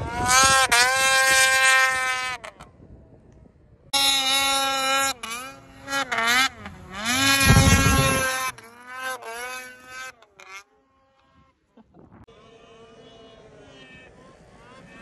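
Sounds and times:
snowmobile engine revving: 0.0s - 2.8s, 3.9s - 15.0s
snowmobile rushing past: 0.0s - 2.8s, 3.9s - 15.0s.

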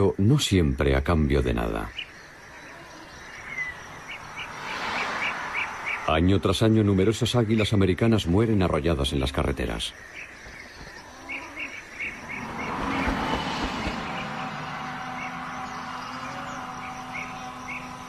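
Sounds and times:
road vehicle passing by: 3.2s - 7.2s, 11.6s - 18.0s.

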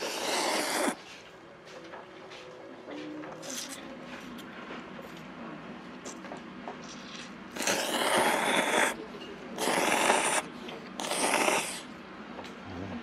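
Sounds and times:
person slurping noodles: 0.0s - 1.0s, 7.5s - 9.0s, 9.6s - 11.9s.

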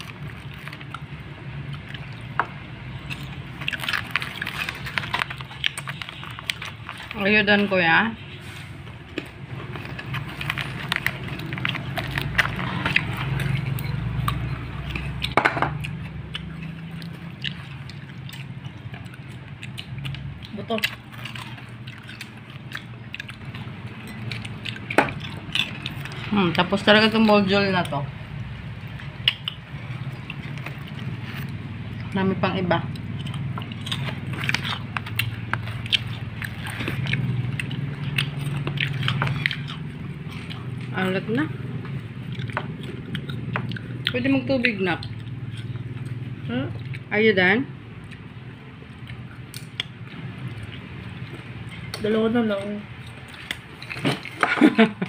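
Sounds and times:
chewing: 0.0s - 47.1s, 47.7s - 55.0s.

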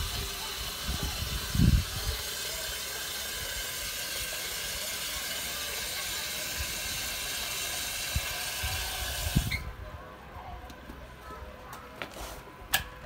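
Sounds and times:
water running from a tap: 0.0s - 9.6s.

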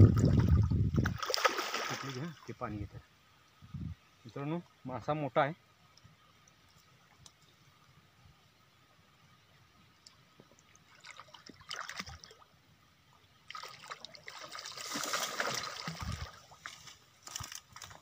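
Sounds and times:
fish splashing in water: 1.0s - 2.2s, 13.5s - 16.5s.

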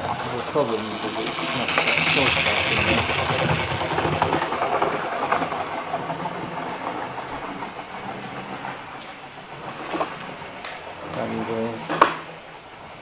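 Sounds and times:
small electric motor whirring: 0.0s - 5.5s
wheels clicking over track: 0.0s - 13.0s.

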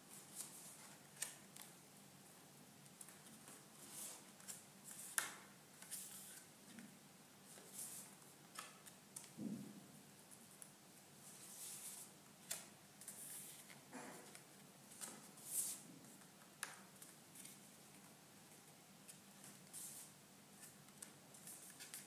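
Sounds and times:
pages turning: 3.0s - 6.9s, 19.1s - 22.0s
soft thump: 9.4s - 9.8s.

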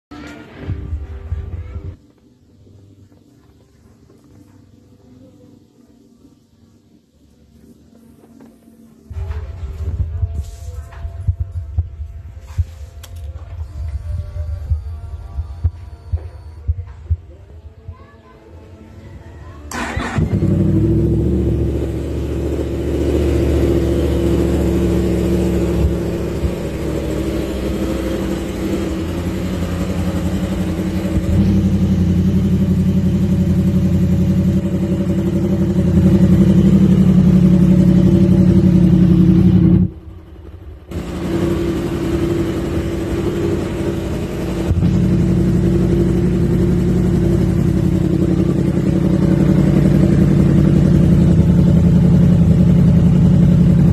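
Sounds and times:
motorcycle engine idling: 19.7s - 53.9s.

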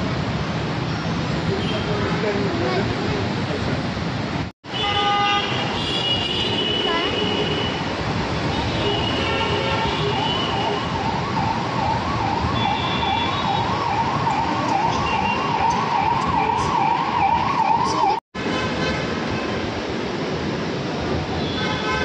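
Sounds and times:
road traffic noise: 0.0s - 22.0s
emergency siren wailing: 10.0s - 18.2s.

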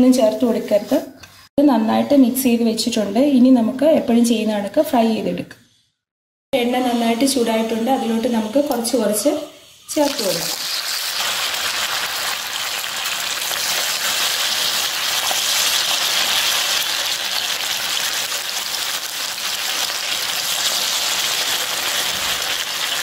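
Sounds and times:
oil sizzling in a pan: 6.6s - 23.0s.

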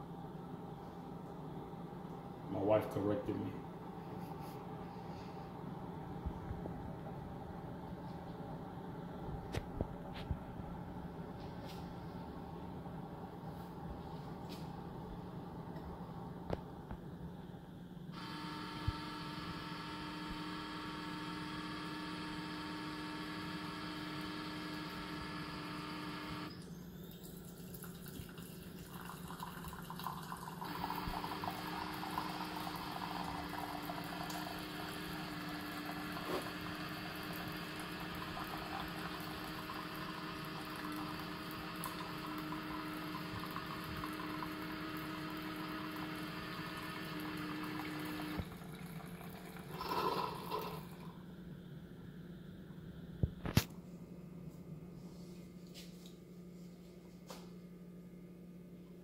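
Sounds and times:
coffee maker humming: 18.1s - 51.6s
water pouring into mug: 27.1s - 51.2s.

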